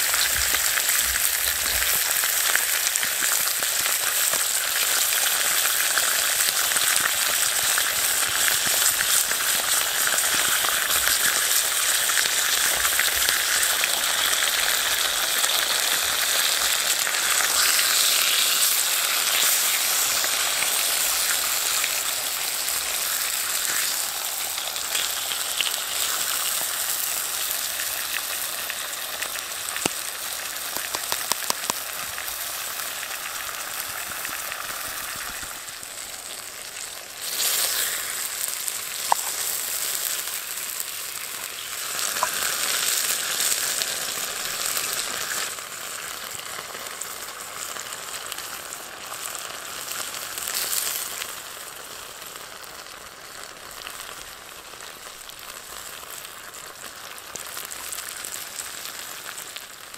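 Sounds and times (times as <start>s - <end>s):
meat sizzling in a frying pan: 0.0s - 59.9s
small pops: 29.8s - 32.2s, 39.0s - 39.5s, 42.1s - 42.5s.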